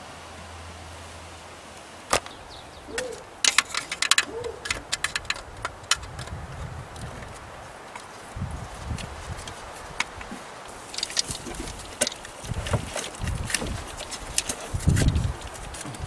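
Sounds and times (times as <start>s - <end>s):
plastic and metal clicks: 3.1s - 6.4s.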